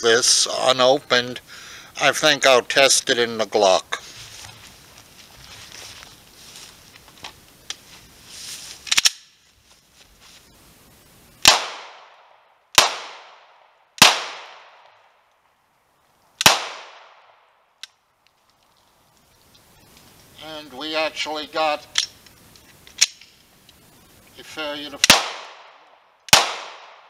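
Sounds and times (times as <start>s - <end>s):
pistol shots echoing: 11.4s - 12.2s, 12.8s - 14.9s, 16.4s - 17.3s, 25.0s - 27.0s.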